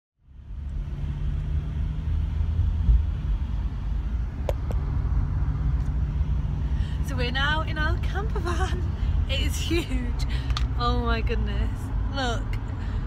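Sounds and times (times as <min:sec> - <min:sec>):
engine and road rumble: 0:00.2 - 0:13.0.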